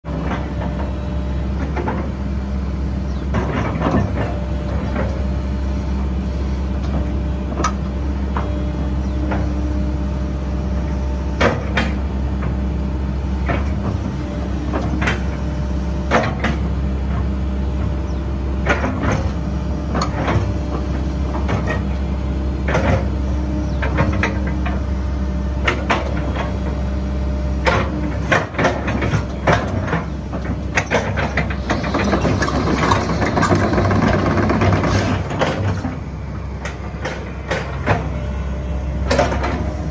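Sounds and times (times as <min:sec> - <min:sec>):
excavator diesel drone: 0:00.0 - 0:39.9
metal clanks and knocks: 0:27.6 - 0:36.0, 0:36.6 - 0:38.2, 0:39.0 - 0:39.9.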